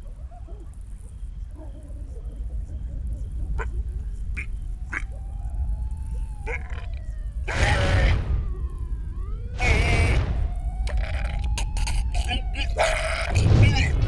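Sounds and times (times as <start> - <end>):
low rumble: 0.8 - 14.0
loud raspy cries: 6.4 - 8.4, 9.6 - 13.9.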